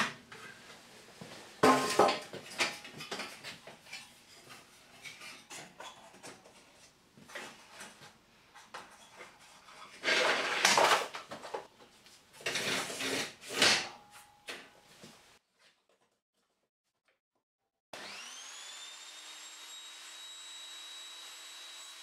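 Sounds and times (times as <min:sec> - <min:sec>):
fence scraping over metal table: 0:09.0 - 0:11.1, 0:12.4 - 0:13.9.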